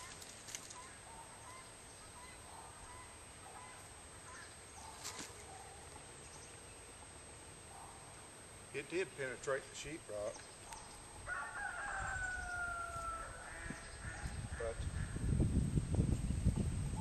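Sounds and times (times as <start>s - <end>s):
distant chickens clucking: 0.0s - 6.1s, 10.3s - 15.2s.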